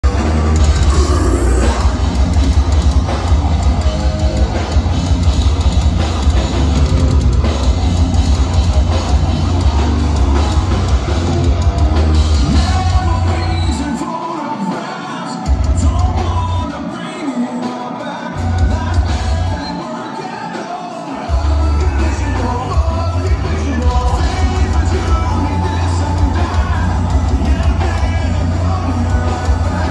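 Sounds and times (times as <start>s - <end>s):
man singing and yelling: 0.0s - 2.3s, 12.4s - 29.9s
heavy metal band playing live: 0.0s - 29.9s.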